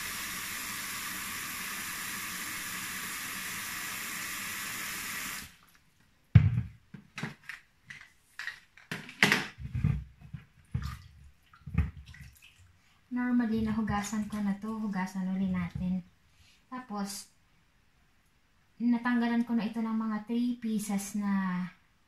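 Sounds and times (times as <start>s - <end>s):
water splashing in bowl: 10.6s - 12.7s.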